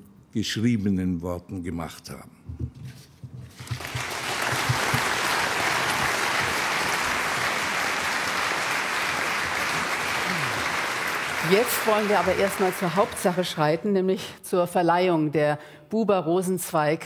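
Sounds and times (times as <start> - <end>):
audience applauding: 3.5 - 13.8.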